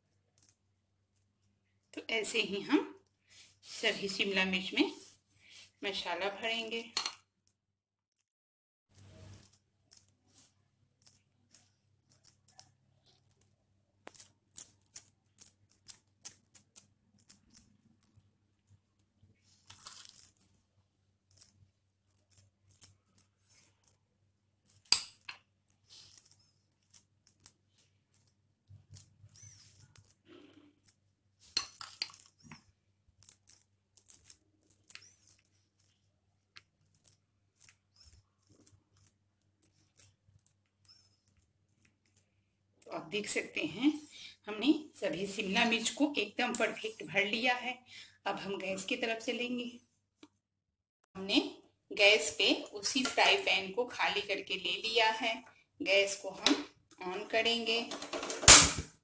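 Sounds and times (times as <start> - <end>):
metal spoon scraping and tapping: 6.9 - 7.2, 31.5 - 32.5.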